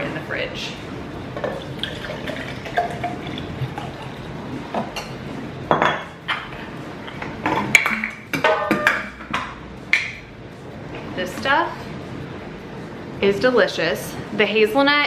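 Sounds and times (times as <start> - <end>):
coffee pouring into a jar: 1.6 - 4.2.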